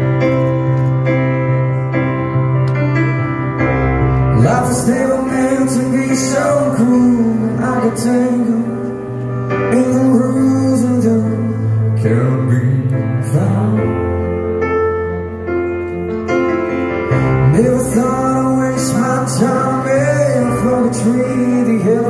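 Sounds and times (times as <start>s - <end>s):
grand piano chords: 0.0s - 22.0s
man singing ballad: 4.2s - 15.4s, 17.2s - 22.0s.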